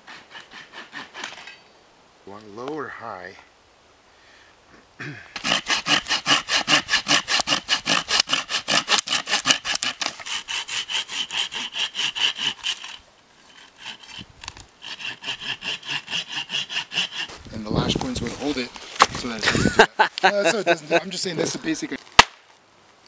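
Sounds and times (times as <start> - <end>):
hand saw cutting stick: 0.0 - 1.6, 5.4 - 17.4.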